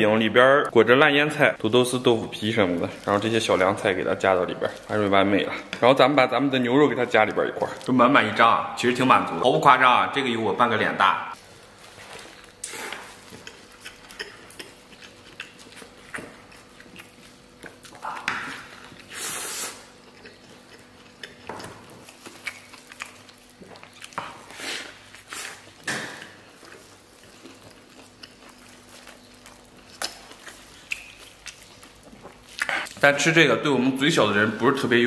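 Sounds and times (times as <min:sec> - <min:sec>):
man chewing food: 0:11.3 - 0:33.0.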